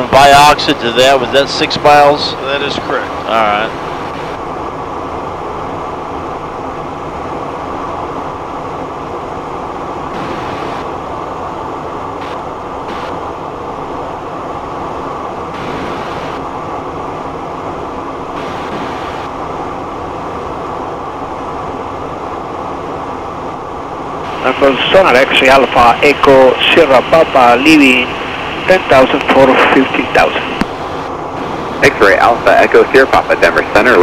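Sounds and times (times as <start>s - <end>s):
jet cockpit airflow and engine hum: 0.0s - 34.0s.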